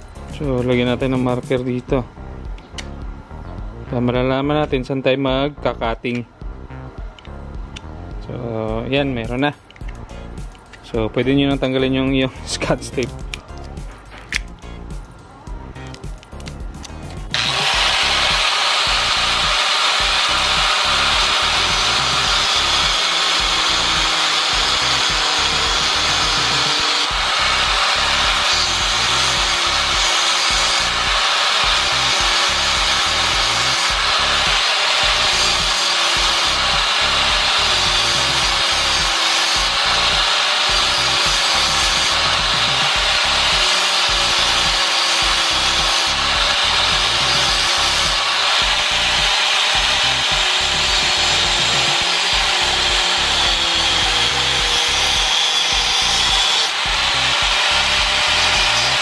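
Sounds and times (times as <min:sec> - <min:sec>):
angle grinder cutting metal: 0:16.8 - 0:59.0
grinder motor whine: 0:17.3 - 0:59.0.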